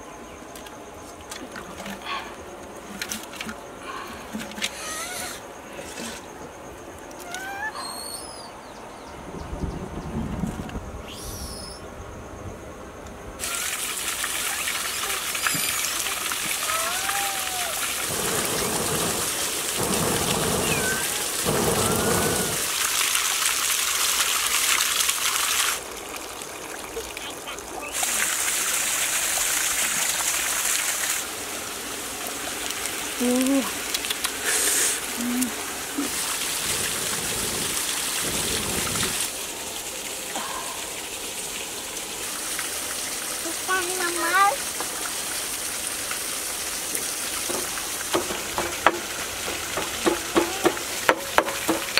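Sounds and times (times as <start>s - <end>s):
rushing water hiss: 0.0s - 8.5s, 10.4s - 12.0s, 13.3s - 51.9s
blowing on a wood fire: 17.4s - 22.7s.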